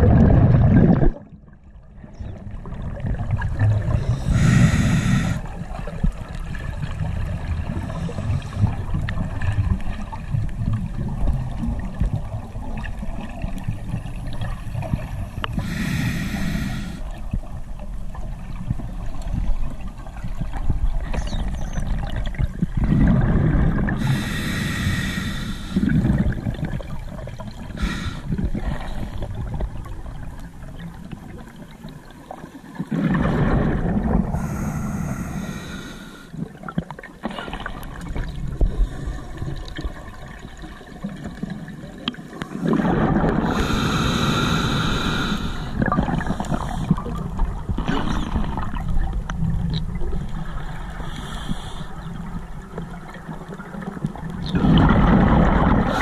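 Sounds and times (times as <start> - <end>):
low underwater rumble: 0.0 - 36.8, 42.7 - 56.0
regulator breathing bubbles: 3.9 - 5.5, 15.4 - 17.1, 22.8 - 26.6, 27.6 - 29.3, 32.9 - 36.5, 42.6 - 47.4, 54.4 - 56.0.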